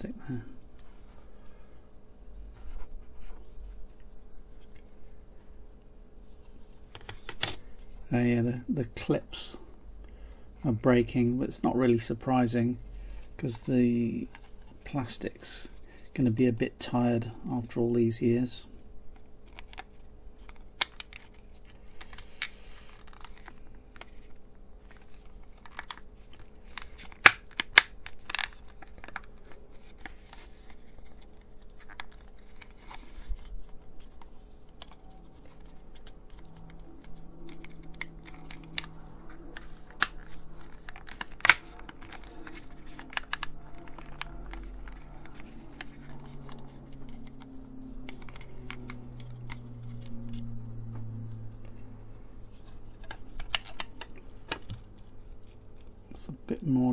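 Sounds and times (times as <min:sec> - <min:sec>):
sharp plastic snaps: 0:26.7 - 0:29.3, 0:36.0 - 0:50.1.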